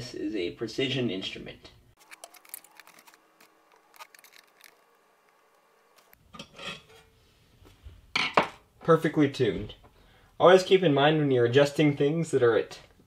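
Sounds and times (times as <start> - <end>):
handling rustle: 2.0 - 6.2
screwdriver clicks and scrapes: 2.0 - 6.2.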